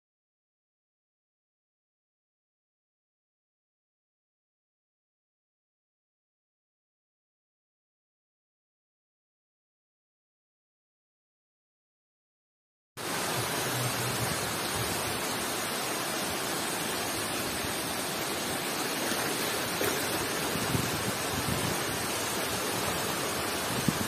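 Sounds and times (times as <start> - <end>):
floodwater rushing across road: 13.0 - 24.0.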